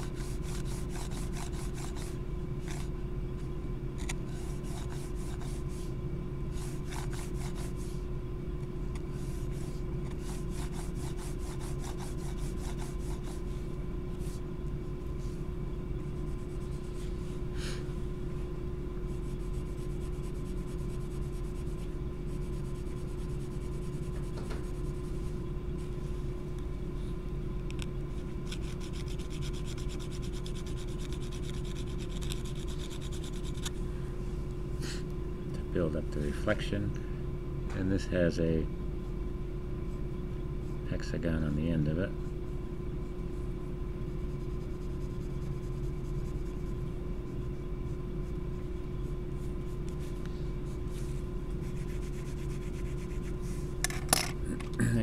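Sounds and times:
pencil scratching on paper: 0:00.0 - 0:02.9, 0:04.2 - 0:05.9, 0:06.5 - 0:08.0, 0:09.2 - 0:13.5, 0:19.1 - 0:25.2, 0:28.5 - 0:33.7, 0:44.2 - 0:48.4, 0:49.0 - 0:53.6
steady low hum: 0:00.0 - 0:55.0.

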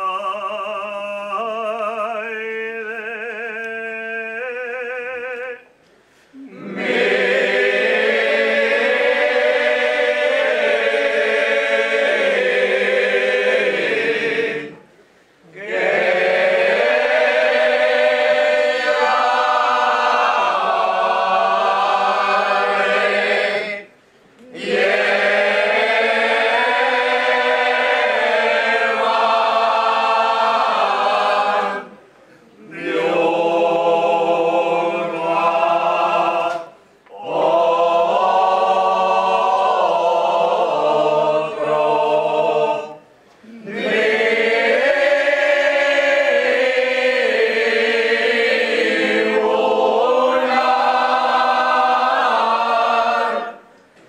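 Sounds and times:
mixed group singing unaccompanied: 0:06.4 - 0:53.7.

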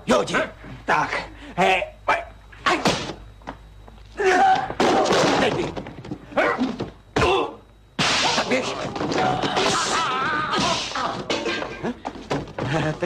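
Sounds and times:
men grunting and crying out: 0:04.2 - 0:04.9, 0:09.0 - 0:11.9.

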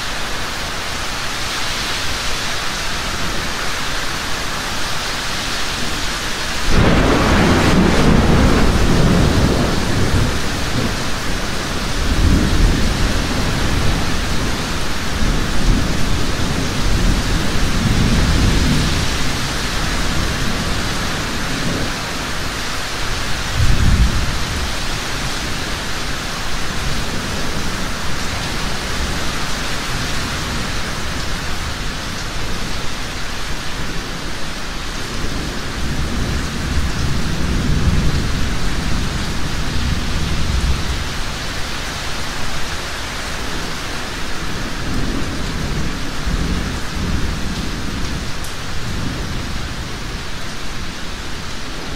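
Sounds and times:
heavy rain falling: 0:00.0 - 0:51.9
rolling thunder: 0:06.7 - 0:22.2, 0:23.3 - 0:31.9.

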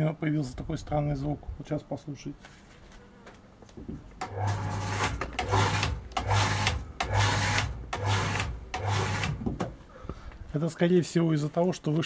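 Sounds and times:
electric pump motor pulsing: 0:04.2 - 0:09.7.

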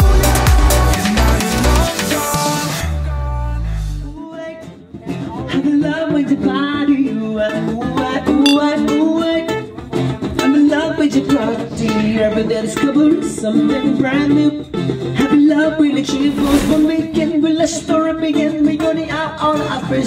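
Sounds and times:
plucked guitar: 0:08.5 - 0:09.9.

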